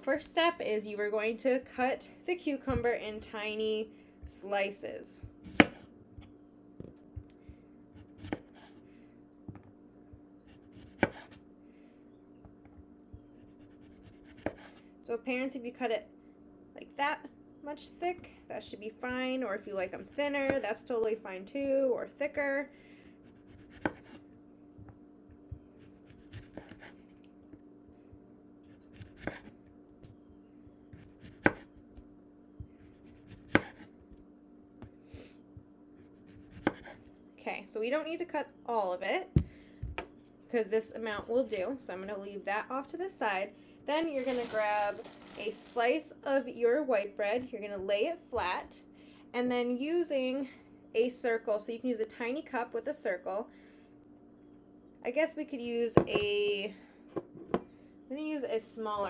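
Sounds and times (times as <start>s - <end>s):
faint steady hum: 0.0s - 59.0s
knife cutting cucumber: 5.4s - 5.9s, 8.0s - 8.8s, 10.5s - 11.4s, 13.4s - 14.8s, 23.2s - 24.2s, 25.8s - 27.1s, 28.7s - 29.6s, 30.9s - 32.0s, 32.8s - 34.2s, 36.0s - 37.0s.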